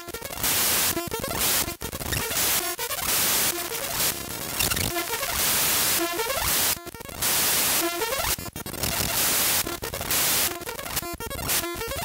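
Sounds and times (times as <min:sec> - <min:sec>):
glitchy buzzing tones: 0:00.0 - 0:12.0
harsh static hiss: 0:00.0 - 0:12.0.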